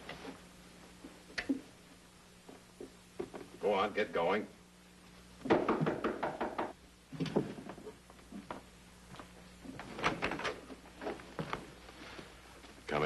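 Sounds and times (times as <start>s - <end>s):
knocking at a door: 5.5s - 6.8s.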